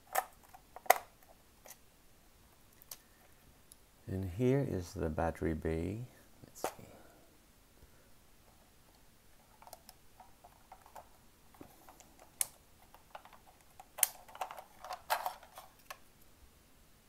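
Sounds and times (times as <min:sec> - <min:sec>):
battery holder rattling: 0:09.5 - 0:16.0
plastic clicks and scrapes: 0:09.5 - 0:16.0.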